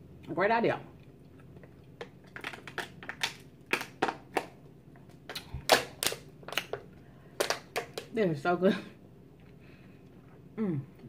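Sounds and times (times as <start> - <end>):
plastic water bottle crinkling: 2.1 - 4.5.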